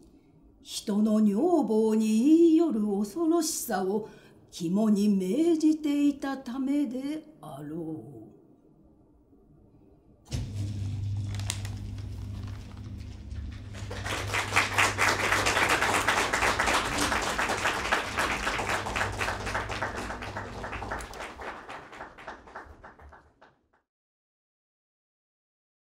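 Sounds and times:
low steady hum: 7.0 - 21.4
audience applause: 11.2 - 23.5.

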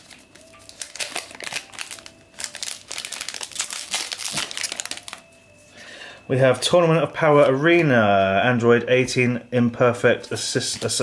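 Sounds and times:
foil wrapper crinkling: 0.0 - 5.4.

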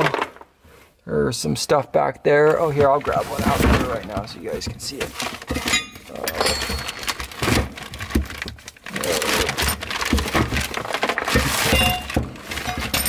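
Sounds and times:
cardboard and plastic rustling: 2.4 - 13.0
knocks and thumps: 2.5 - 8.6, 9.3 - 13.0.

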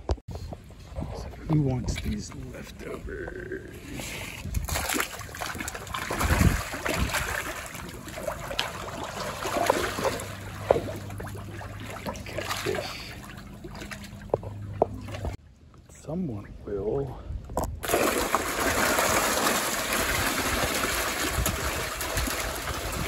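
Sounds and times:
fish splashing at water surface: 4.4 - 15.4, 17.8 - 23.0.

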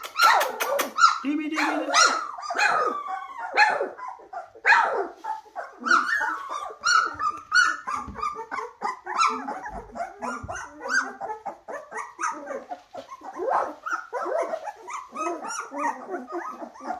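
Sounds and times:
puppies squealing and whining: 0.0 - 16.9.

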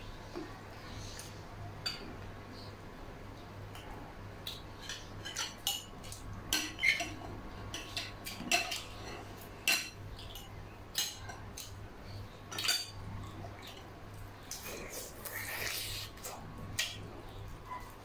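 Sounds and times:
spoons clinking on ceramic bowls: 4.5 - 11.8.

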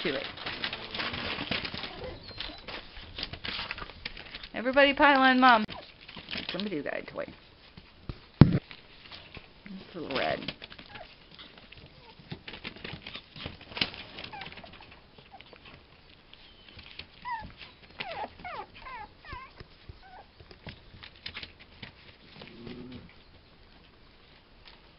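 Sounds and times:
paws scuffling on newspaper: 0.0 - 22.8
puppies whining and yipping: 1.7 - 3.0, 10.8 - 12.2, 14.1 - 15.8, 16.4 - 20.5
puppy growl: 17.3 - 20.3, 22.4 - 23.1.

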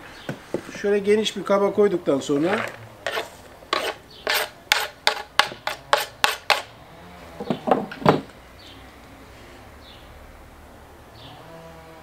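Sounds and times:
knife scraping cutting board: 2.5 - 6.7.

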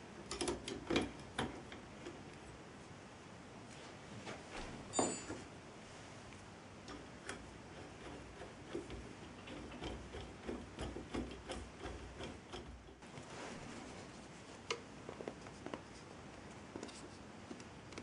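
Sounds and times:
sharp metallic clink: 4.9 - 5.4.

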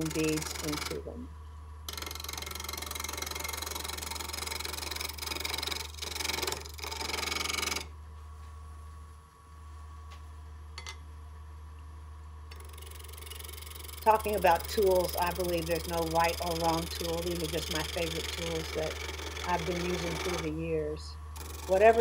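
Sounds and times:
gouge cutting wood on lathe: 0.0 - 1.1, 1.9 - 7.9, 12.6 - 20.6, 21.4 - 22.0
low steady hum: 0.0 - 22.0.

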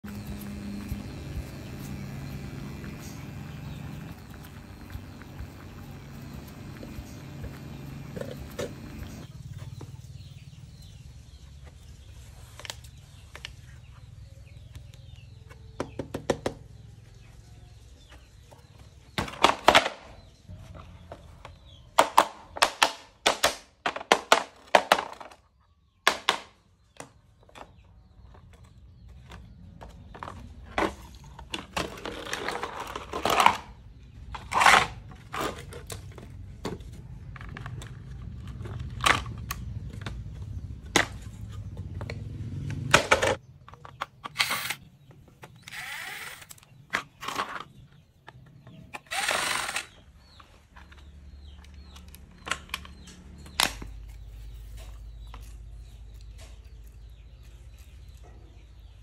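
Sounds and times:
plastic parts clicking and knocking: 18.5 - 57.4
plastic scraping rattles: 19.1 - 42.2, 42.9 - 57.4
screwdriver removing screws: 44.3 - 44.8, 45.6 - 46.7, 48.9 - 49.9.

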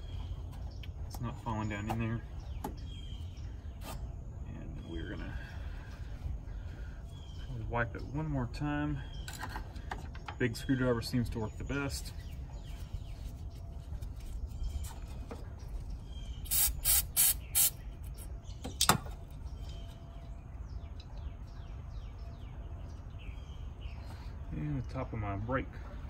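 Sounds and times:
aerosol can spraying: 16.5 - 17.8.

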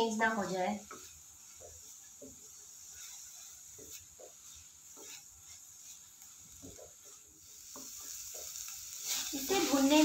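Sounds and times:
steady hiss: 0.0 - 10.0
wooden spatula scraping iron pan: 0.0 - 10.0.

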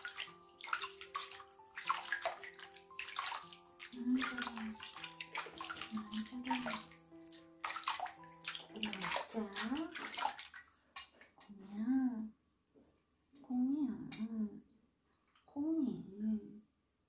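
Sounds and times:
water splashing in a sink: 0.0 - 11.4.

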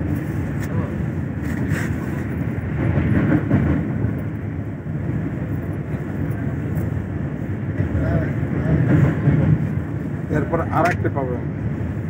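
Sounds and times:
train wheels rumbling: 0.0 - 12.0.

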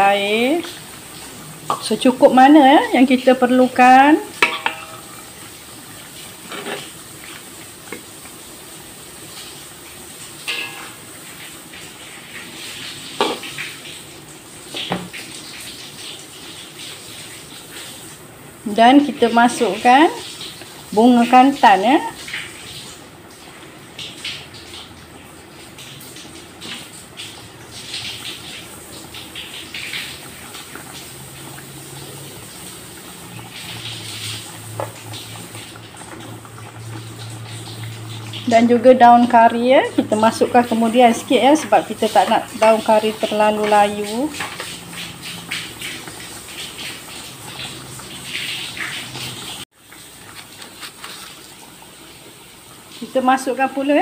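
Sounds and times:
gravy bubbling in a pot: 0.0 - 54.0
simmering sauce hiss: 0.1 - 24.7
metal spoon clinking against pot: 4.4 - 5.1.

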